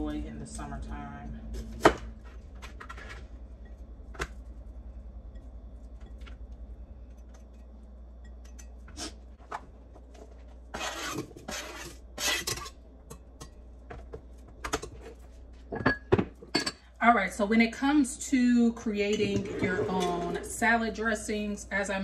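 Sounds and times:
low steady hum: 0.0s - 22.0s
knife scraping cutting board: 10.7s - 12.7s.

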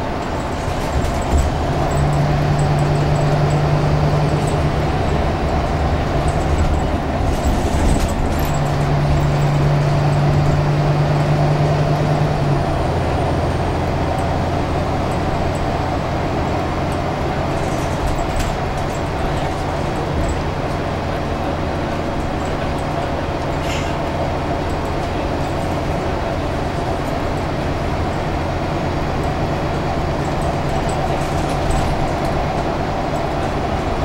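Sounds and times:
bus body rattles: 0.0s - 34.0s
bus diesel engine: 0.0s - 34.0s
road noise: 0.0s - 34.0s.

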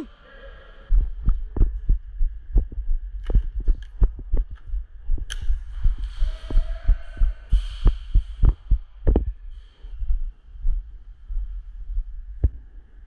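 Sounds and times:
low thumps and knocks: 1.1s - 9.4s
sharp click: 5.3s - 5.6s.

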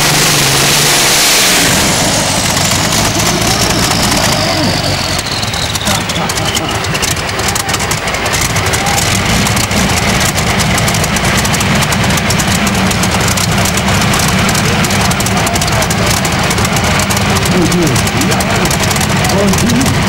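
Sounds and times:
tractor engines idling: 0.0s - 20.0s.

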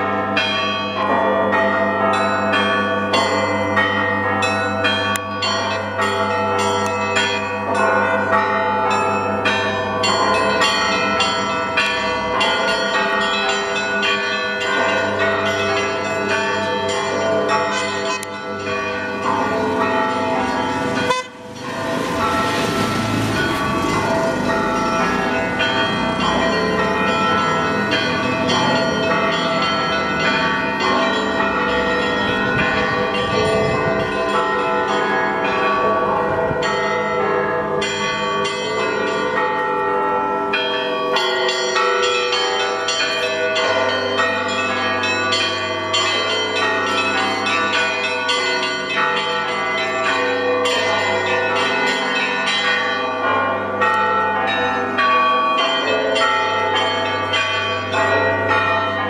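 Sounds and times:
church bells pealing: 0.0s - 59.0s.

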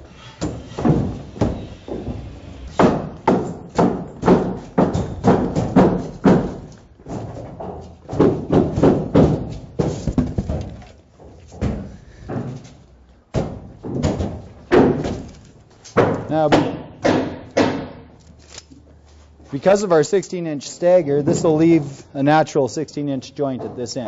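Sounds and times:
foam blocks knocking and thudding: 0.4s - 12.6s, 13.3s - 15.3s, 16.0s - 18.1s.

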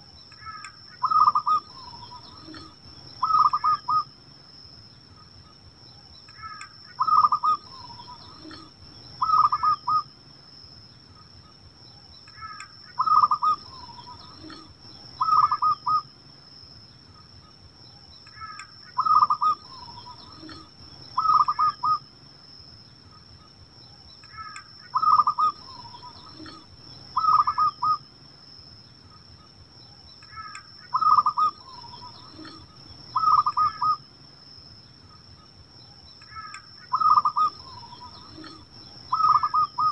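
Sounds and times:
dove cooing: 0.4s - 4.1s, 6.4s - 10.1s, 12.4s - 16.0s, 18.4s - 22.0s, 24.3s - 28.0s, 30.3s - 34.0s, 36.3s - 39.9s.

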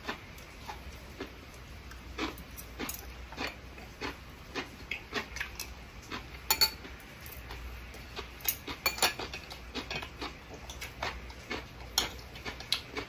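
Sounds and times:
utensils clinking on ceramic bowl: 6.5s - 7.6s, 8.4s - 10.1s, 12.0s - 12.2s.

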